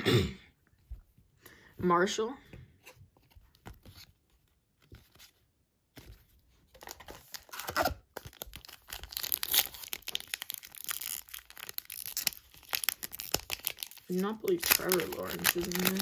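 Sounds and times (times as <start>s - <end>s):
plastic wrapper crinkling and tearing: 6.7s - 16.0s.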